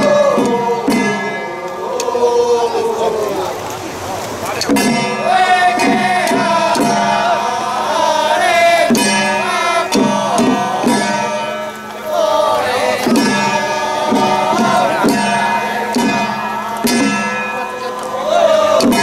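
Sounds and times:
drum strikes: 0.0 - 2.4, 4.6 - 19.0
steady drone: 4.8 - 19.0.

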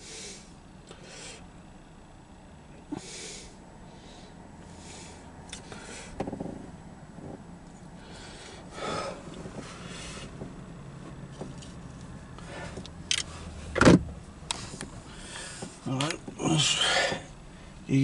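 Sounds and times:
low hum in car cabin: 0.0 - 18.0
breathy rustles: 8.0 - 10.4.

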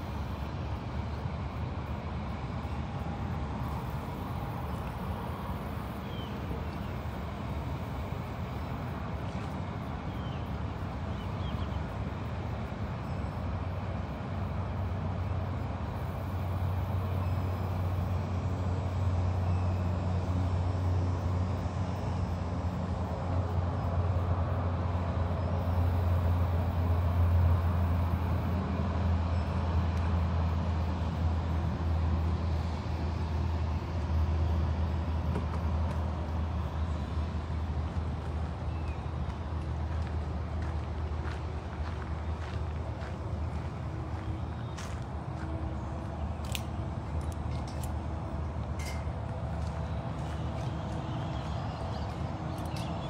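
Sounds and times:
low outdoor rumble: 0.0 - 53.0.

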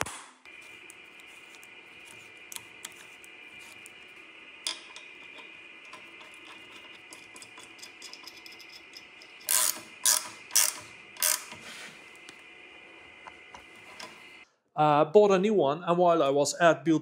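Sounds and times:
metal parts clicking and tapping: 4.7 - 11.6
hand ratchet clicking: 7.2 - 11.6.

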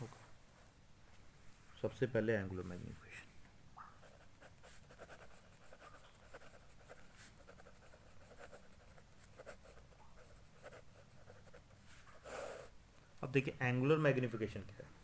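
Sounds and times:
pen scratching on paper: 4.0 - 12.5.

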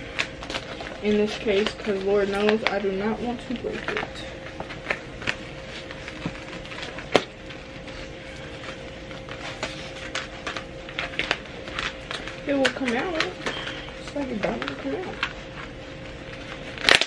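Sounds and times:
plastic packaging crinkling: 0.0 - 17.0.

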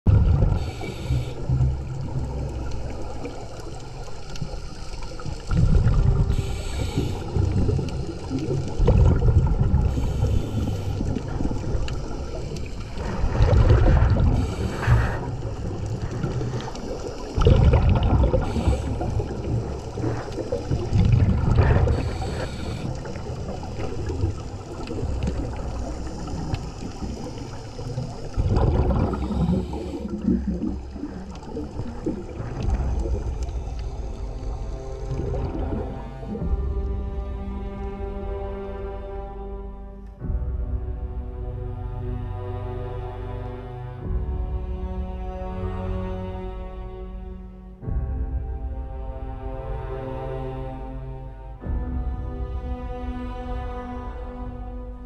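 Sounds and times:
underwater bubbles rushing: 0.1 - 38.6
short breathing hisses: 6.3 - 7.4.

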